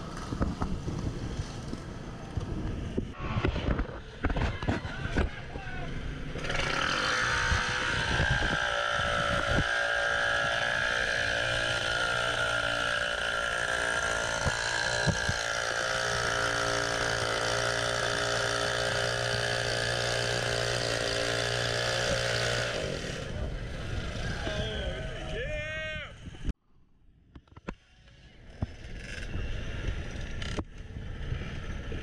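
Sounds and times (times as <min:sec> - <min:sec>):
small motorcycle engine running: 0:05.9 - 0:25.3, 0:28.0 - 0:32.0.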